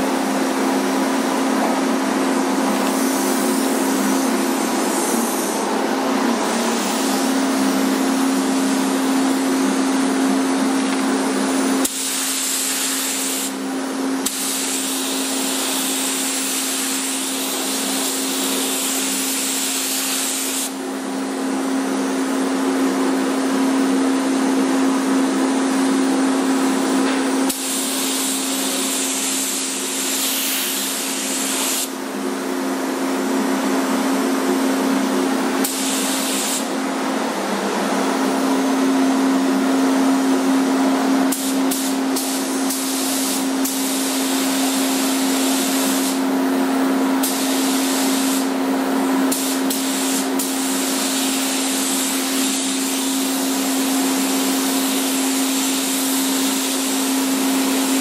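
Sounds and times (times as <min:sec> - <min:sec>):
steady machine hum: 0:00.0 - 0:58.0
paint spray gun hissing: 0:02.8 - 0:05.6, 0:11.8 - 0:13.6, 0:14.2 - 0:20.8, 0:27.5 - 0:31.9, 0:35.6 - 0:36.7, 0:41.3 - 0:46.2, 0:47.2 - 0:48.5, 0:49.3 - 0:53.4, 0:54.8 - 0:57.0.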